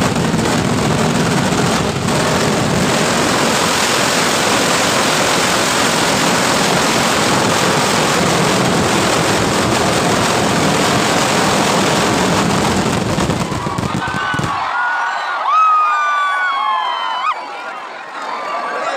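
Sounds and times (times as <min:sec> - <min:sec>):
firecracker barrage crackling: 0:00.0 - 0:14.8
crowd shouting: 0:13.2 - 0:18.9.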